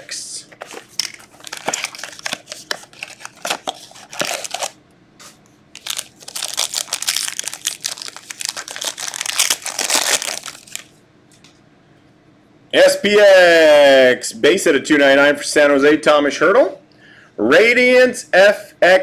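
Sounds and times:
card pack wrapper crinkling: 0:00.6 - 0:04.8, 0:05.8 - 0:11.0.

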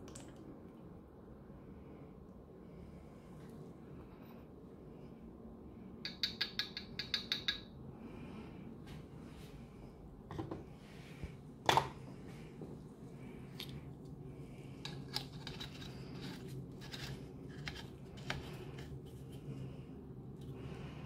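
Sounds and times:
tin-plate parts clicking and scraping: 0:14.8 - 0:19.2.

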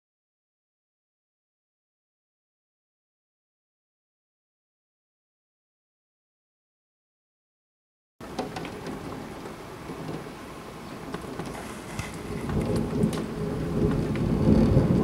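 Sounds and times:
rain falling: 0:08.2 - 0:15.0
thunder rumbling: 0:08.2 - 0:15.0.

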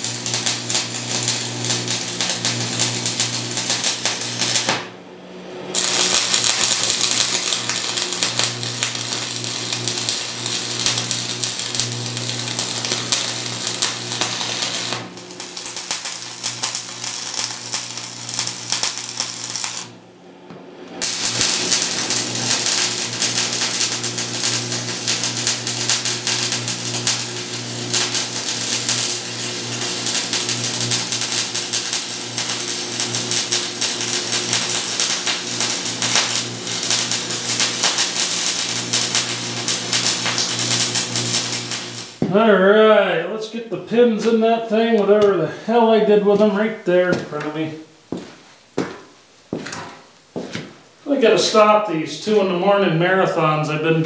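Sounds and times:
arc welding crackle: 0:00.0 - 0:42.4
welder buzz: 0:00.0 - 0:42.4, 0:43.9 - 0:54.0.

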